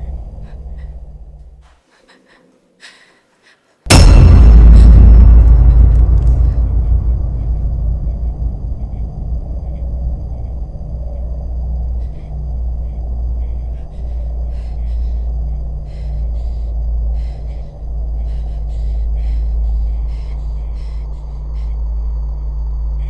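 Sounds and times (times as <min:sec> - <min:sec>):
low rumbling drone: 0:00.0 - 0:01.7, 0:03.9 - 0:23.0.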